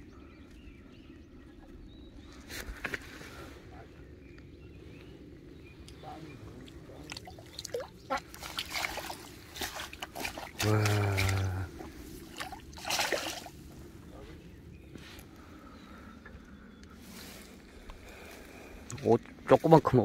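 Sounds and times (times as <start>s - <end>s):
water splashing and dripping: 6.6s - 13.6s.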